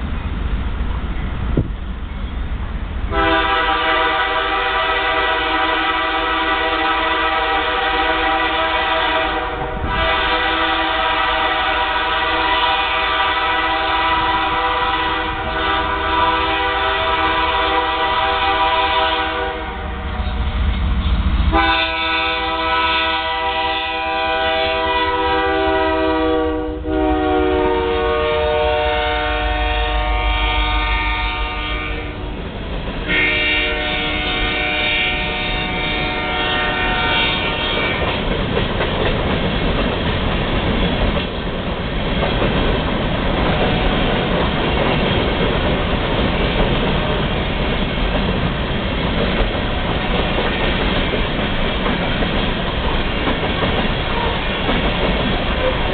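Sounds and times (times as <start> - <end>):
locomotive air horn blasts: 3.1 - 20.4, 21.5 - 32.4, 33.1 - 38.1.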